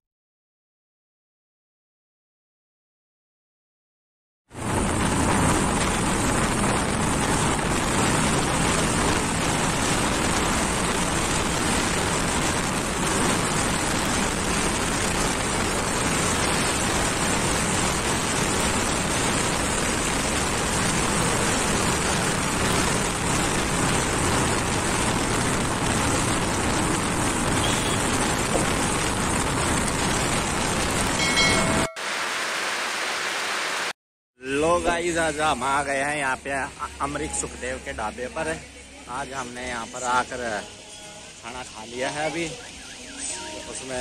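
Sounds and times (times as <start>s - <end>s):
road and traffic noise: 4.5s - 44.0s
wind rush on microphone: 4.6s - 31.8s.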